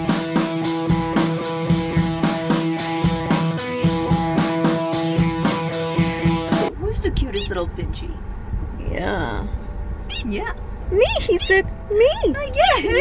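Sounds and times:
music with held notes and beat: 0.0s - 6.7s.

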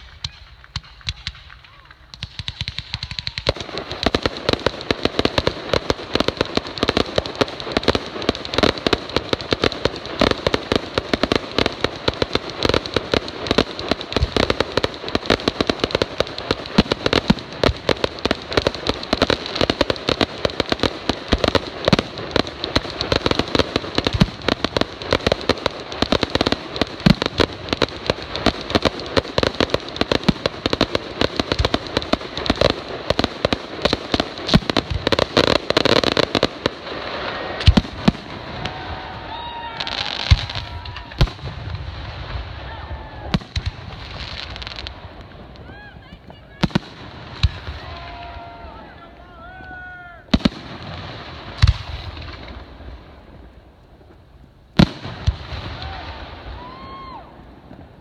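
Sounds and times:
fireworks bangs and crackles: 0.0s - 58.0s.

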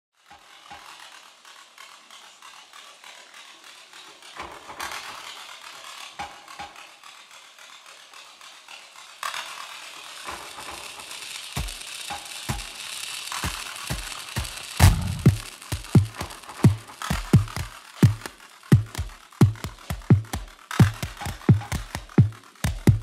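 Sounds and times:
crackling ratchet-like rattle: 0.2s - 23.0s
deep thudding beat: 14.8s - 23.0s.

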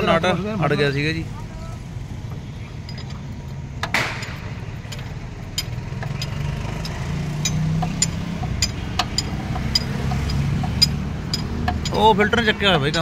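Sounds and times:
light clicks of metal gears: 2.7s - 13.0s.

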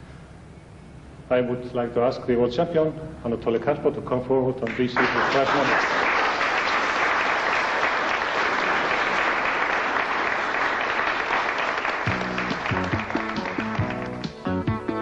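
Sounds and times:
audience applauding: 4.7s - 14.6s
music with bass line: 12.1s - 15.0s.

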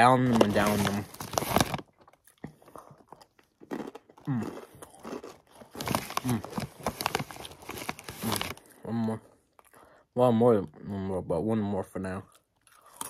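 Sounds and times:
plastic chip bag crinkling: 0.0s - 8.7s
crunching and chewing chips: 0.0s - 10.9s, 12.0s - 13.0s.

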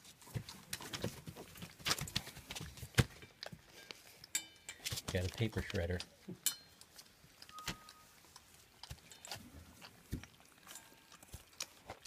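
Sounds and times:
puppies chewing: 0.0s - 12.0s.

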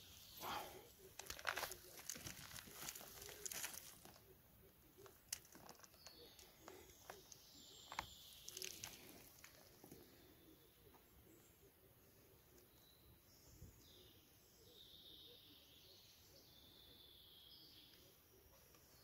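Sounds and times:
dry grass rustling and crackling: 0.0s - 10.2s
small twigs snapping: 1.1s - 4.2s, 5.0s - 9.7s.

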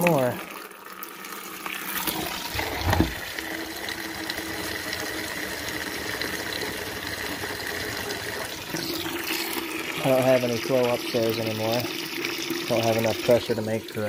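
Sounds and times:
water spraying into plastic bucket: 0.0s - 14.0s
thump: 2.6s - 3.2s.

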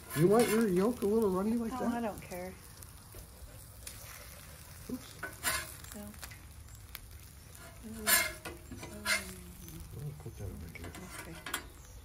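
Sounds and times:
metal spatula scraping griddle: 0.0s - 1.1s, 5.2s - 5.9s, 7.5s - 9.8s, 10.7s - 11.8s
food sizzling on griddle: 0.0s - 12.0s.

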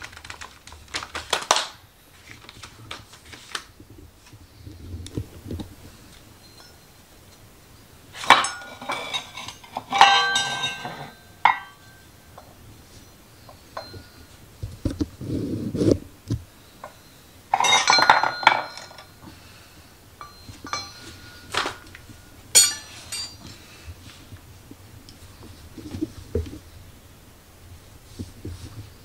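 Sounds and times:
metal hand tools clinking: 8.2s - 12.5s, 17.5s - 19.2s, 20.2s - 23.7s.

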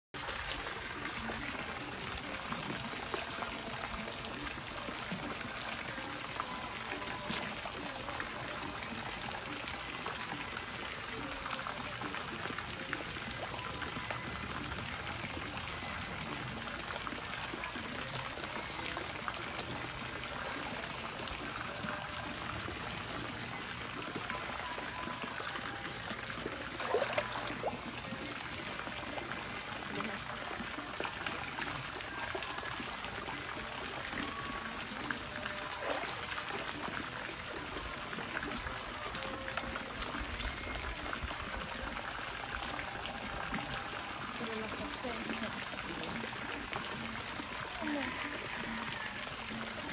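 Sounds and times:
running water: 0.0s - 49.9s.

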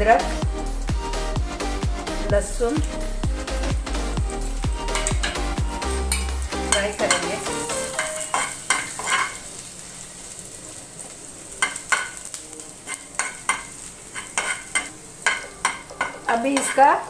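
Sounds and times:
garlic sizzling in oil: 2.0s - 17.0s
spoon stirring and scraping pan: 4.8s - 9.7s, 11.6s - 17.0s.

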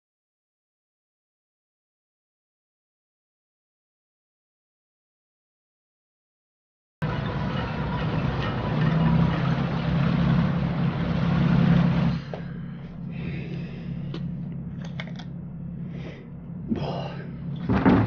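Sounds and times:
loud engine rumble: 7.0s - 18.0s.

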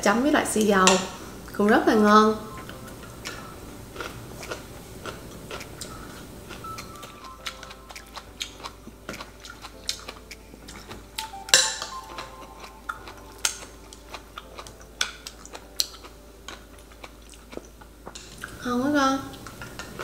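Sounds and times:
utensils clinking against ceramic bowls: 10.8s - 15.3s.

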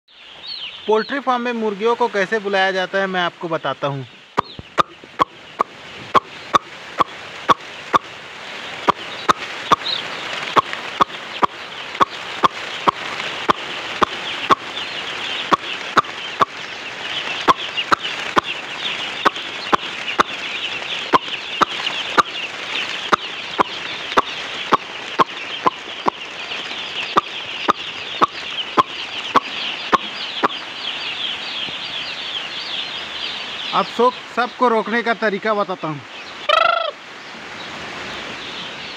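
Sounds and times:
chicks cheeping: 0.1s - 38.9s
sharp calling clicks: 4.3s - 8.1s, 8.8s - 31.8s.

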